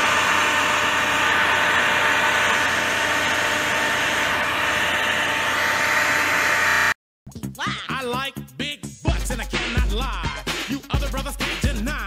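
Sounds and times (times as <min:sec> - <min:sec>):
heat gun blowing air: 0:00.0 - 0:07.0.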